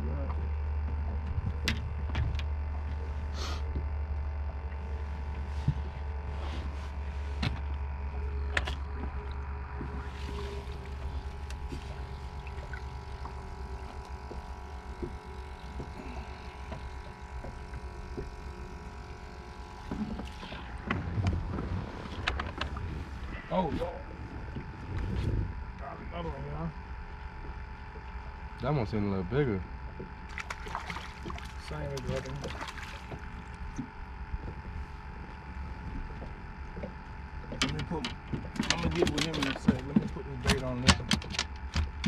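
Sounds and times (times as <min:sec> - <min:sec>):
boat motor humming: 0:00.0 - 0:42.0
faint steady whine: 0:00.0 - 0:42.0
gear knocking on boat: 0:35.8 - 0:42.0.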